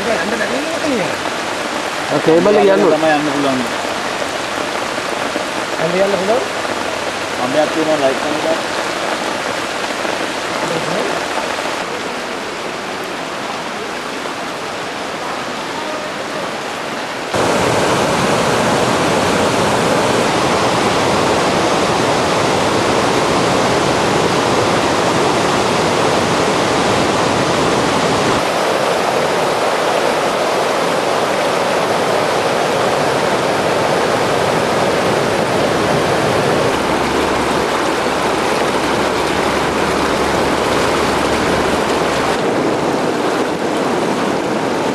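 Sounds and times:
floodwater rushing: 0:00.0 - 0:44.9
rain: 0:00.0 - 0:44.9.

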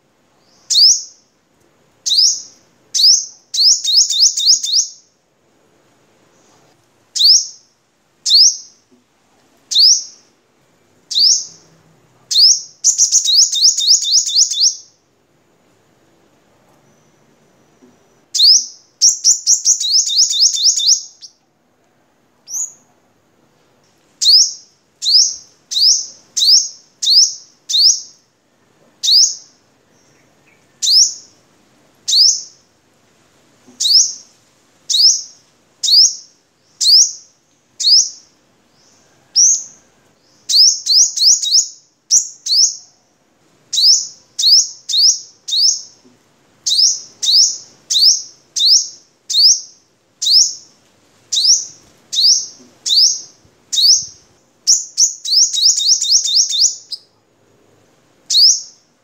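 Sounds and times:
bird singing high-pitched notes: 0:00.4 - 0:01.2, 0:02.0 - 0:05.1, 0:07.2 - 0:07.7, 0:08.3 - 0:08.8, 0:09.7 - 0:10.2, 0:11.1 - 0:11.7, 0:12.3 - 0:14.9, 0:18.3 - 0:21.4, 0:24.2 - 0:28.2, 0:30.5 - 0:31.3, 0:32.1 - 0:32.6, 0:34.9 - 0:38.2, 0:40.4 - 0:42.9, 0:43.8 - 0:46.0, 0:46.7 - 0:50.7, 0:51.4 - 0:57.1, 0:58.3 - 0:58.8.

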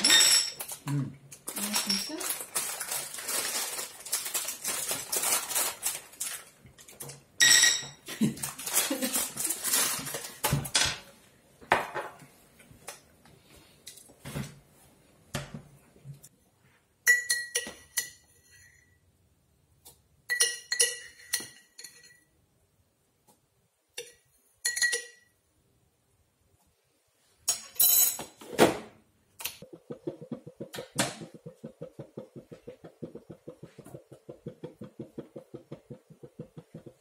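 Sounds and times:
plastic tray crinkling: 0:01.5 - 0:07.2.

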